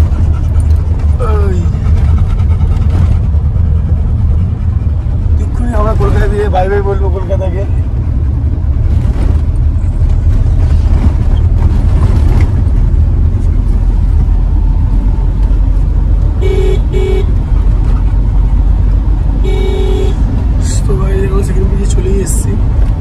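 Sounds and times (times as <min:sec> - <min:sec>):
road and engine rumble in car: 0:00.0 - 0:23.0
vehicle horn toots: 0:16.4 - 0:17.4, 0:19.4 - 0:20.3.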